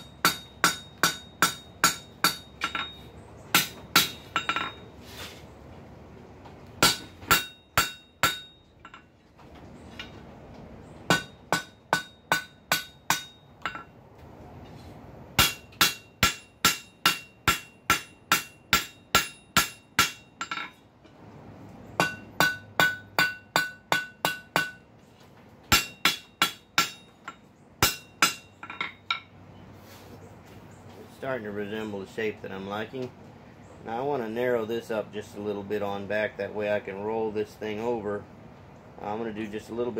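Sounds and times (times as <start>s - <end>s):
hammer striking hot steel on anvil: 0.0s - 4.9s, 6.8s - 9.1s, 11.1s - 14.0s, 15.4s - 20.8s, 22.0s - 24.9s, 25.7s - 29.3s.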